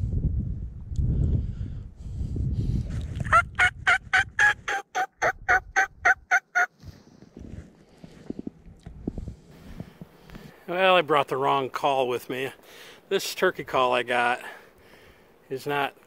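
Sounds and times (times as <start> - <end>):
wind rumbling on microphone: 0.0 - 10.6
raspy turkey call yelps: 3.3 - 6.7.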